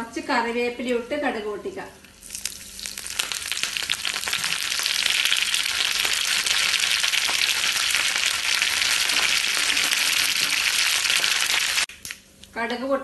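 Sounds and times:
spices sizzling in hot oil: 2.1 - 11.9
mustard seeds popping: 2.2 - 12.2.

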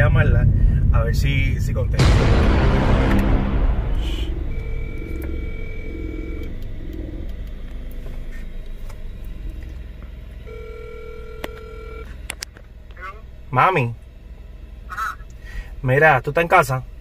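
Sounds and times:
low car rumble: 0.0 - 17.0
rush of noise: 0.2 - 7.9
phone ringback tone: 4.5 - 6.6, 10.4 - 12.1.

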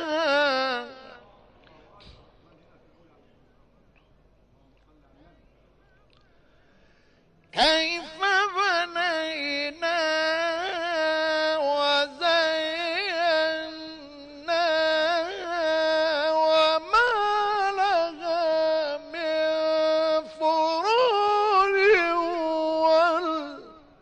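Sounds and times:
man chanting recitation: 0.0 - 4.1, 7.5 - 24.0
short breaths: 6.2 - 7.5.

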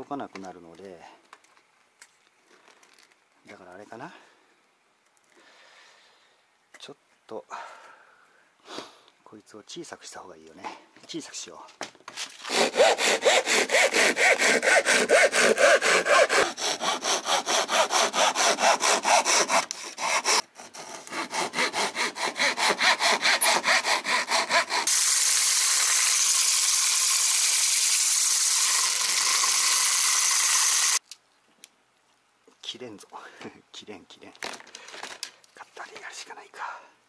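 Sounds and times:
hand saw cutting wood: 12.3 - 31.0
disc spinning on drill hiss: 24.9 - 31.0.

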